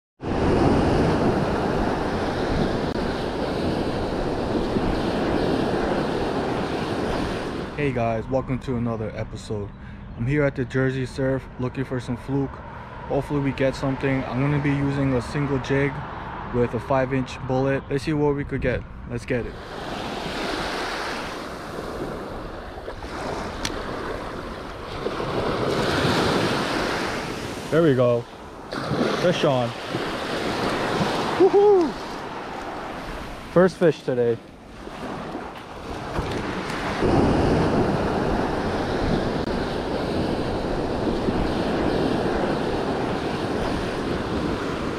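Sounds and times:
wind on microphone: 0.2 - 7.8, 18.4 - 33.6, 34.4 - 44.9
ocean surf breaking: 0.2 - 8.0, 19.3 - 44.9.

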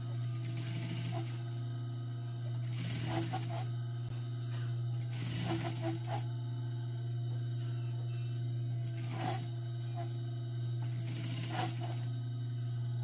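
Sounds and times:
steady low hum: 0.0 - 13.0
sewing machine stitching: 0.3 - 1.5, 2.6 - 3.7, 5.0 - 6.2, 8.9 - 10.1, 10.8 - 12.1.

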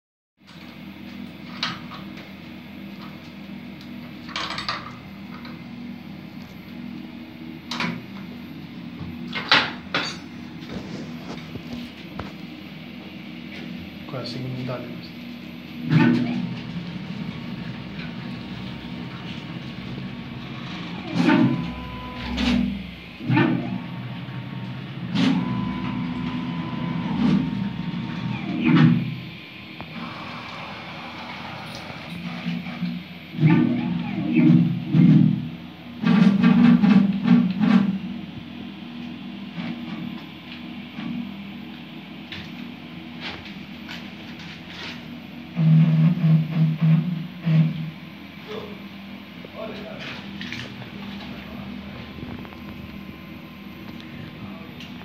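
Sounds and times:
steady high whine: 0.5 - 55.0
steady low hum: 0.5 - 55.0
cnc router motors surging: 10.4 - 38.2, 44.9 - 55.0.

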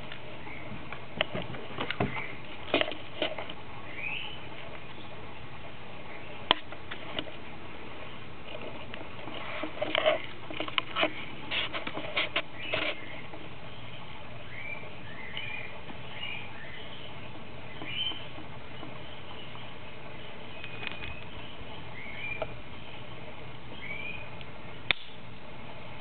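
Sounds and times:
puppy chewing on a stick: 8.4 - 13.5.

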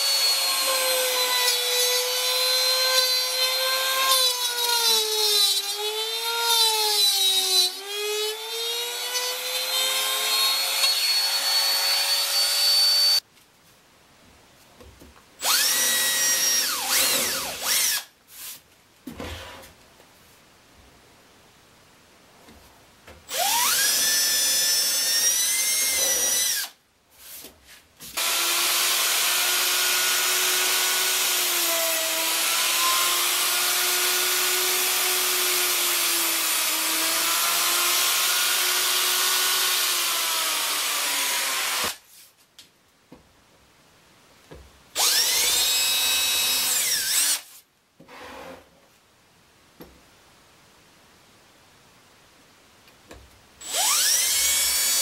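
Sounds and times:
cordless drill whining: 15.4 - 18.1, 23.3 - 26.8, 28.2 - 42.0, 45.0 - 47.5, 53.6 - 55.0
router humming: 28.2 - 42.0, 45.0 - 47.4, 53.6 - 55.0.

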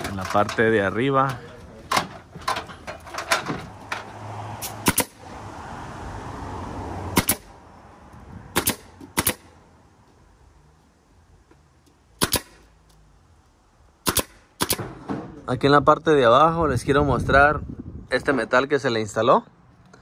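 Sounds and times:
nail gun firing into wood: 4.8 - 5.2, 7.2 - 7.5, 8.6 - 9.5, 12.2 - 12.6, 14.0 - 15.4.

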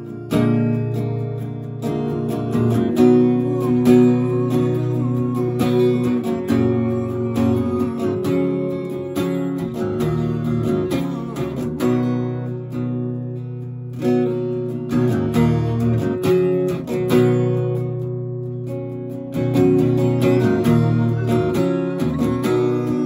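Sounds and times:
acoustic guitar strumming: 0.0 - 23.0.

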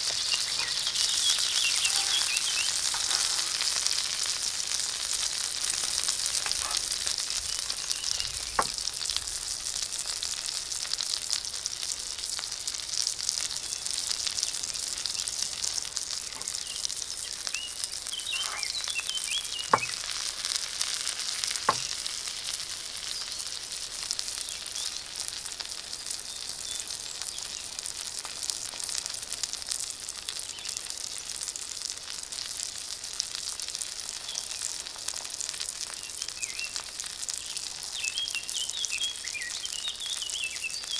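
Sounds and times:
steak sizzling in a skillet: 0.0 - 40.9.

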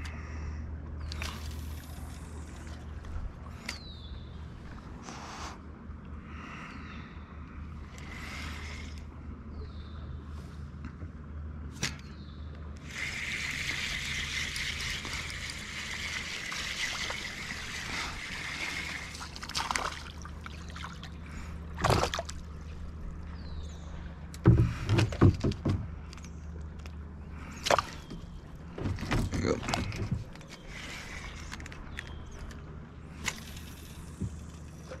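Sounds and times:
fishing reel cranking: 12.8 - 18.4
fish splashing at water surface: 12.9 - 22.6.

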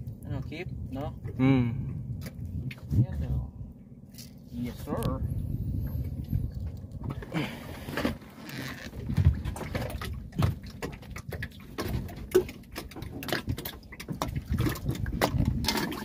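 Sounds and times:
low rumble: 0.0 - 7.9
fish being handled and unhooked: 1.9 - 2.9, 4.1 - 4.5, 6.0 - 16.0.

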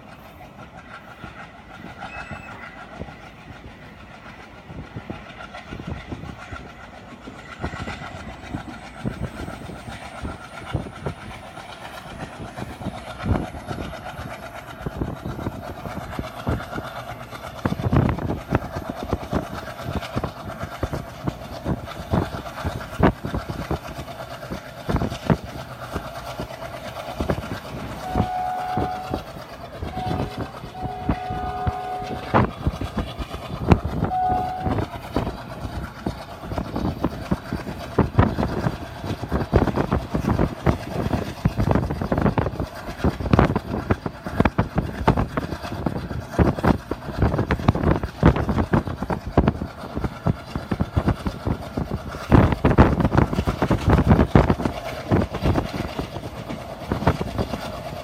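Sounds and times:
train rumble: 0.0 - 58.0
wheels clattering over rail joints: 0.0 - 58.0
train horn: 2.1 - 2.9, 28.0 - 33.2, 34.0 - 35.2.

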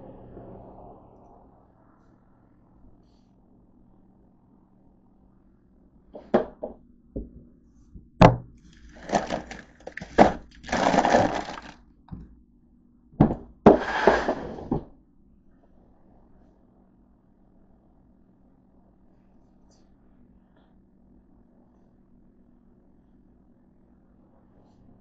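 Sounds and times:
plastic bag crinkling: 8.7 - 11.8.

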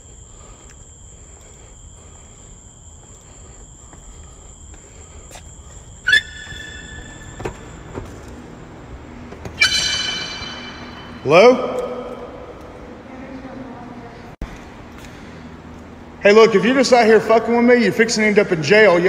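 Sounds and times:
high-pitched trilling: 6.0 - 7.8, 9.6 - 11.5
loud high-pitched sound: 9.6 - 11.6.

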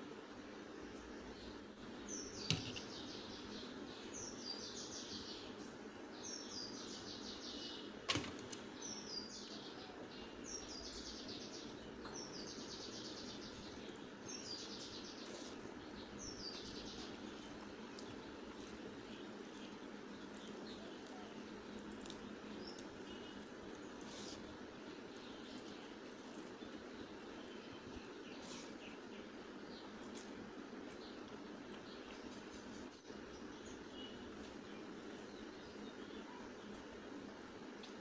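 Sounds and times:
low background noise: 0.0 - 38.0.

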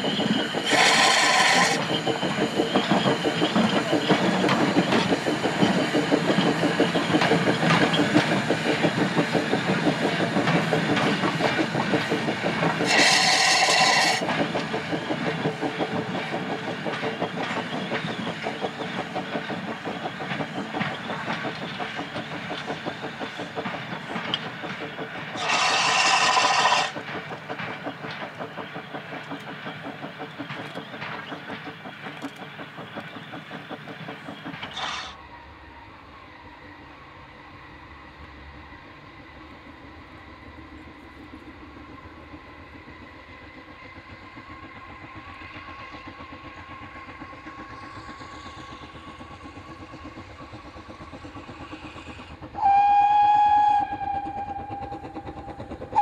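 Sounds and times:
steam engine exhaust beats: 0.0 - 35.2, 40.1 - 56.0
steam whistle blasts: 0.7 - 1.9, 12.9 - 14.2, 25.4 - 26.9, 52.6 - 55.0.

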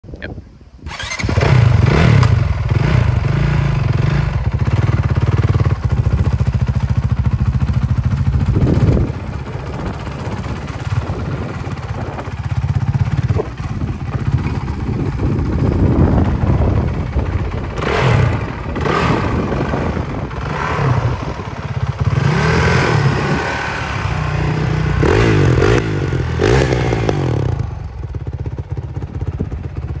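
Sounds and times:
motorcycle engine revving: 0.8 - 30.0.

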